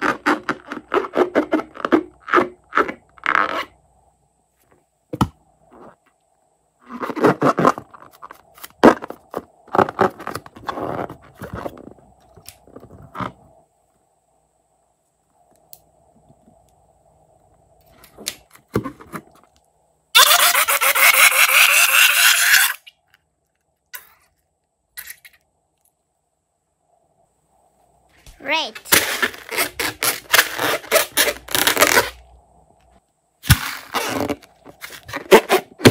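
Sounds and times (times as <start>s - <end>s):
slime balloon squeezed and rubbing: 0.0s - 3.8s, 6.8s - 12.0s, 28.4s - 32.2s, 33.4s - 35.9s
rasping sputter from balloon neck: 20.2s - 22.8s.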